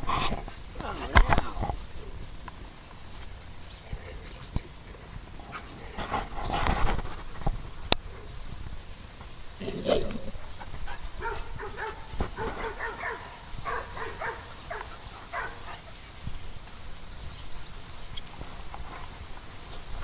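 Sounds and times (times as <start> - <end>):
dog barking: 11.2 - 15.8.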